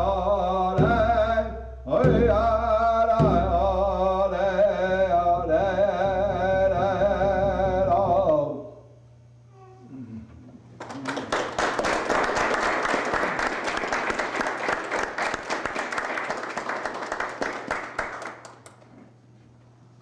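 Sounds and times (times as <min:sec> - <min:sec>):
crowd applauding: 0:10.8 - 0:18.9.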